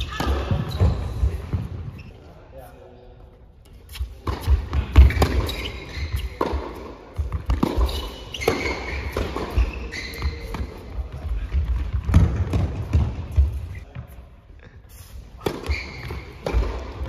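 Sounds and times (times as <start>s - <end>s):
shoes squeaking on court: 0.0s - 2.5s, 3.6s - 17.0s
racket striking tennis ball: 4.2s - 5.7s, 6.3s - 9.9s, 15.4s - 17.0s
tennis ball bouncing: 6.2s - 11.0s, 11.6s - 13.8s, 15.4s - 17.0s.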